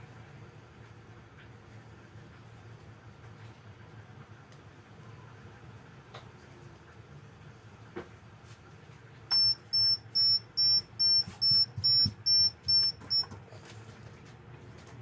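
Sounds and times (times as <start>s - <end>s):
short high electronic beeps: 9.3s - 13.2s.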